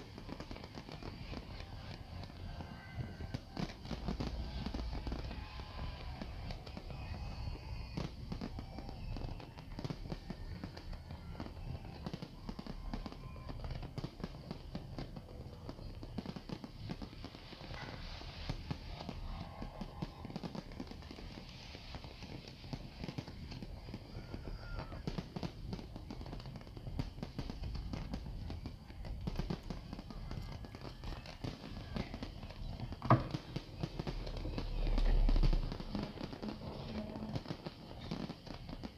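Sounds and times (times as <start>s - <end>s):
fireworks bangs and crackling: 0.0s - 38.9s
crowd voices: 27.8s - 38.2s.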